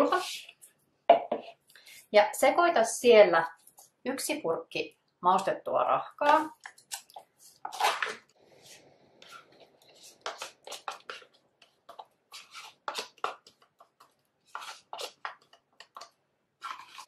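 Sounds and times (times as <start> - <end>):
spoon scraping plastic bowl: 6.2 - 17.0.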